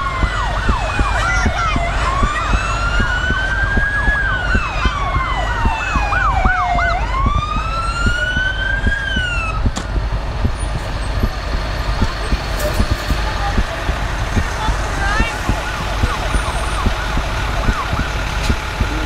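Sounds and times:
yelping siren: 0.0 - 9.7, 15.0 - 19.0
wailing siren: 0.0 - 9.8, 12.0 - 19.0
steady low rumble: 0.0 - 19.0.

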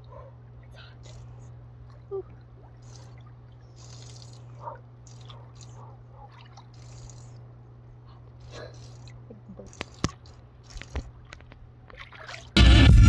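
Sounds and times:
steady low hum: 0.0 - 13.0
bathwater sloshing and splashing: 1.1 - 7.4, 9.7 - 12.6.

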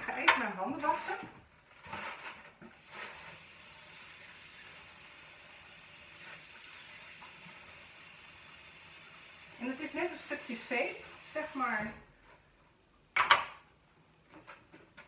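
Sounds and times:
tap water running: 2.6 - 12.1.

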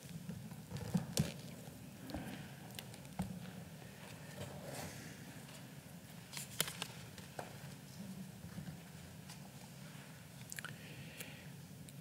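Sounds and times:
paper rustling at a microphone: 6.3 - 7.7.

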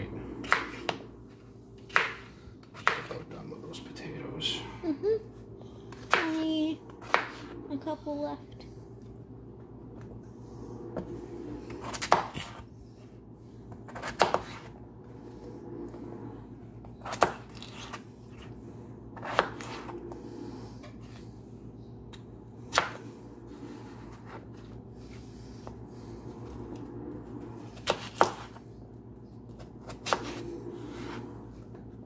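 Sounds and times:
steady low hum: 0.0 - 32.0
knife chopping on cutting board: 1.9 - 3.1, 7.0 - 7.5, 11.8 - 12.6, 13.9 - 14.7, 17.0 - 18.0, 27.8 - 28.5.

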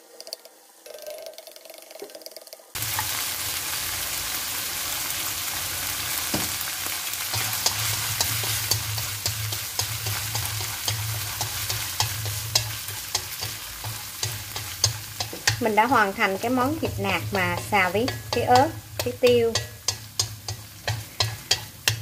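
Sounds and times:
meat sizzling in oil: 2.8 - 22.0
chopsticks clicking against pan: 7.4 - 22.0.

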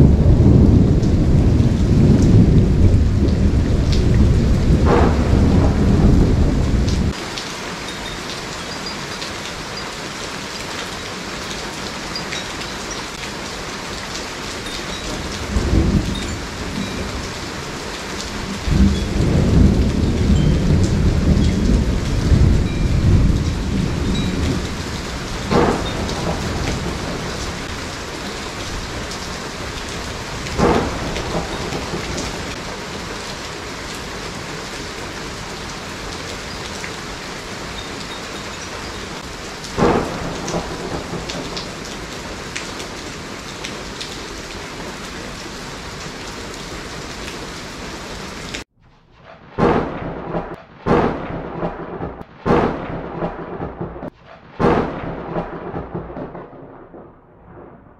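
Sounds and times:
thunder rumbling and cracking: 0.0 - 7.4, 14.2 - 47.1, 49.2 - 57.9
steady rain falling: 0.0 - 48.7, 49.8 - 56.8.

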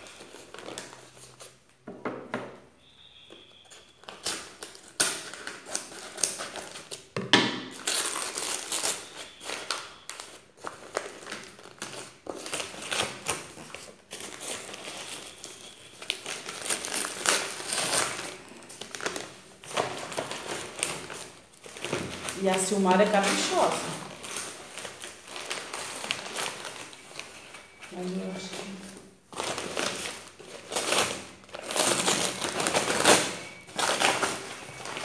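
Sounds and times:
cardboard and paper tearing: 28.8 - 35.0.

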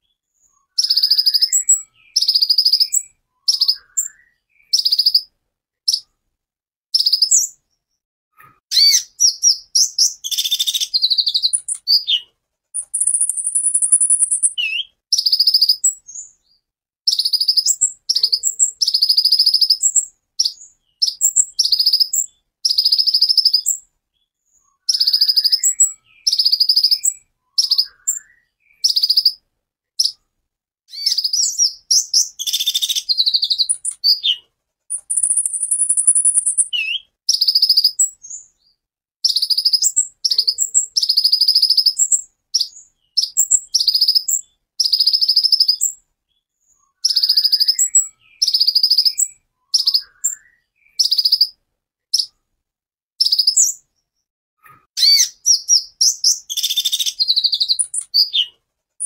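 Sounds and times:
sunbird singing rapid sharp notes: 12.8 - 16.3, 30.9 - 38.1, 55.0 - 58.5.

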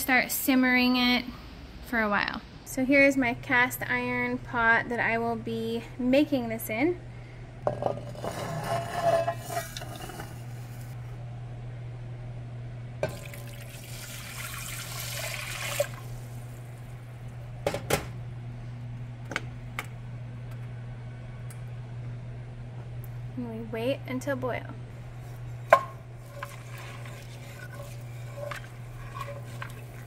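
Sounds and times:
water pouring into pot: 13.0 - 16.5, 26.2 - 30.0
dried berries sliding into pot: 26.2 - 30.0.

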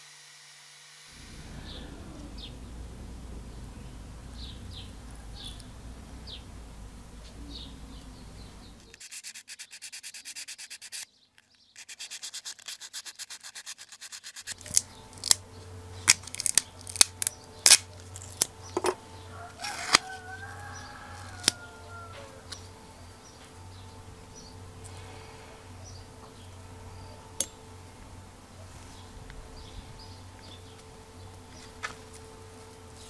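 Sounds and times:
hand sanding metal: 2.8 - 11.0, 11.8 - 15.4.

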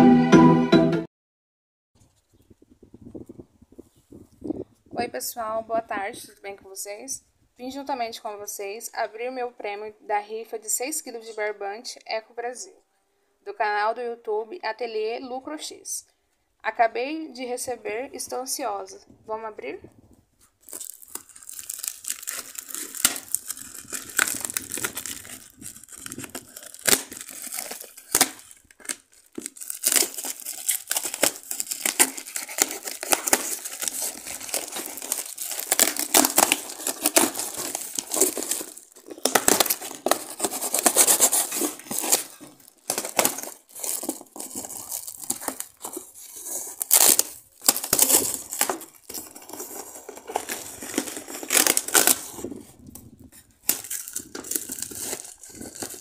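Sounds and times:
plastic wrapping crinkling: 20.4 - 56.0
packing tape ripping: 20.6 - 52.6, 53.6 - 56.0.

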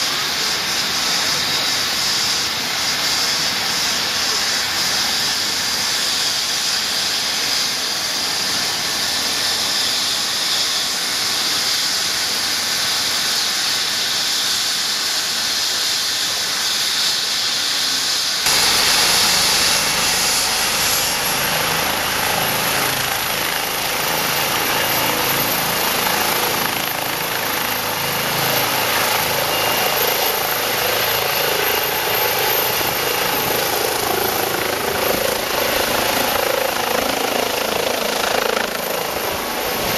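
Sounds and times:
helicopter turbine whine: 0.0 - 39.9
helicopter rotor thrum: 18.5 - 39.9.

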